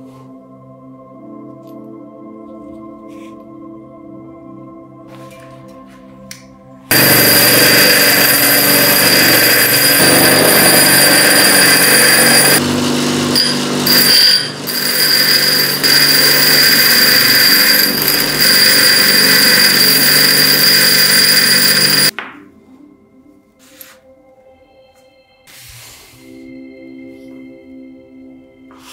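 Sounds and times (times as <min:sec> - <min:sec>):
power tool whining and grinding: 0:06.9 - 0:22.1.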